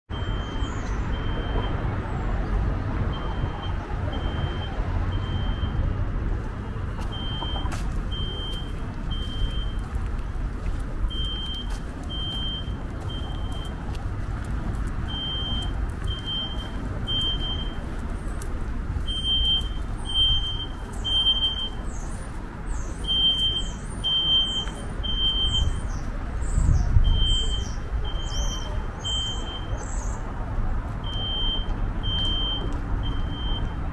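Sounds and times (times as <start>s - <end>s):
road traffic rumble: 0.1s - 33.9s
small birds chirping: 20.9s - 30.2s.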